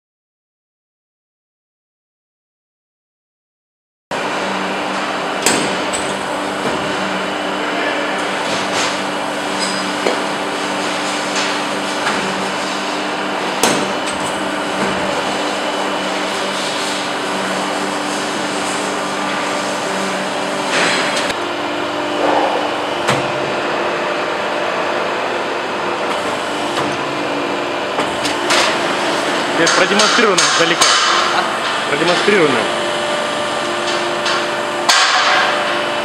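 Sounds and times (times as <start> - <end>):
machine hydraulic hum: 4.2 - 36.0.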